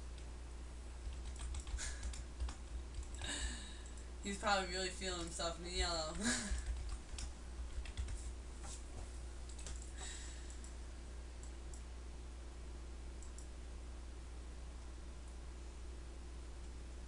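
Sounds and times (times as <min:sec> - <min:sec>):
steady low hum: 0:00.0 - 0:17.0
faint clicks: 0:13.2 - 0:13.5.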